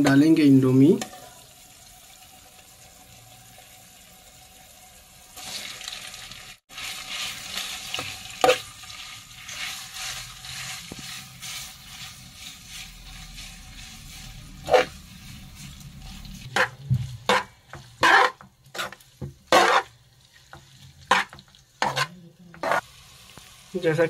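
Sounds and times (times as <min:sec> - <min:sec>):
noodles sizzling in pan: 0:00.0 - 0:24.0
metal spatula scraping pan: 0:06.7 - 0:22.8.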